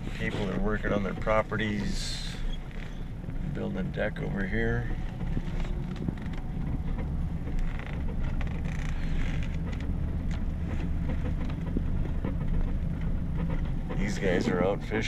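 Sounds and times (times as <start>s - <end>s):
truck engine and road rumble: 0.0s - 15.0s
light clicks and knocks: 4.2s - 14.7s.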